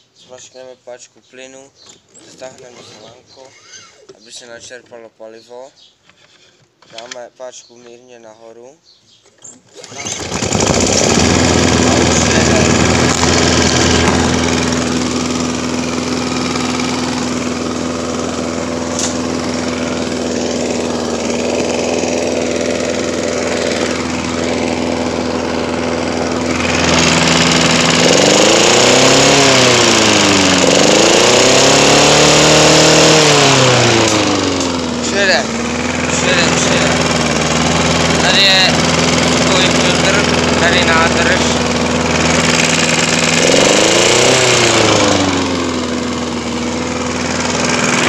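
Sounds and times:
lawn mower engine running: 9.6 - 48.0.

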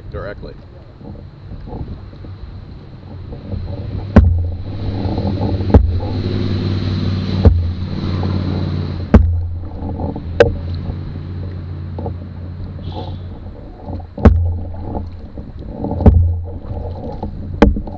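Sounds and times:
motorboat engine droning: 0.0 - 17.9
water wash hissing: 2.2 - 17.9
knocks on canoe hull: 3.9 - 6.5, 7.4 - 8.0, 9.1 - 9.8, 13.9 - 15.2, 15.8 - 17.9.

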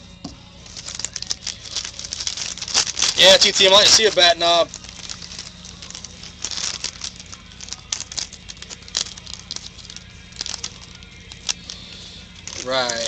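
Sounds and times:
foil wrapper crinkling and tearing: 0.6 - 13.0.

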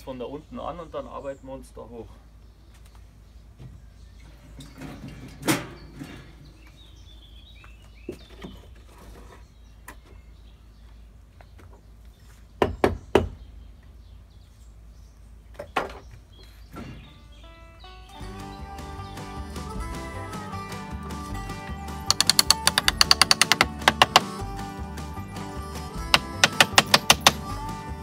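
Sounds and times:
hand tool striking wood: 22.1 - 24.4, 26.1 - 27.5.

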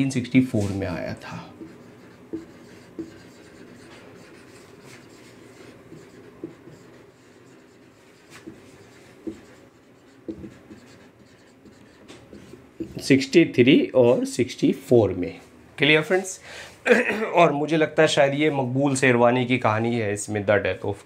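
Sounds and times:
marker writing on whiteboard: 0.0 - 13.4
light marker taps: 1.5 - 4.0, 5.9 - 7.0, 8.3 - 9.6, 10.2 - 13.0.

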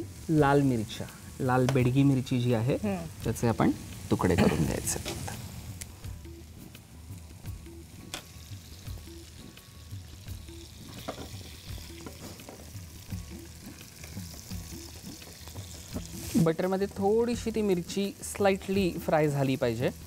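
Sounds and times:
butter sizzling in a pan: 0.0 - 20.0.

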